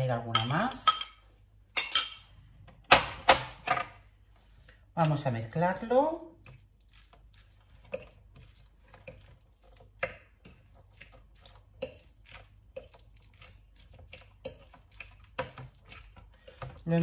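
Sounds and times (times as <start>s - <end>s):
soft squishing: 4.1s - 17.0s.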